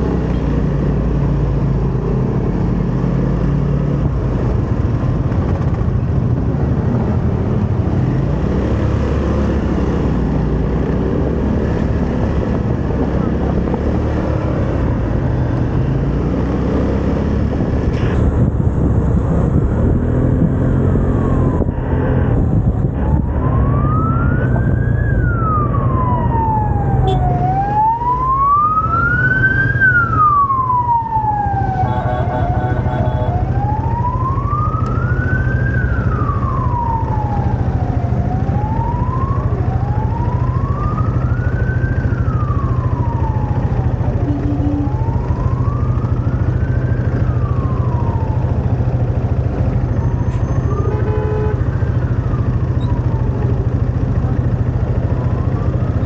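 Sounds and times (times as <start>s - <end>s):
engine and traffic rumble: 0.0s - 56.0s
emergency siren wailing: 20.2s - 56.0s.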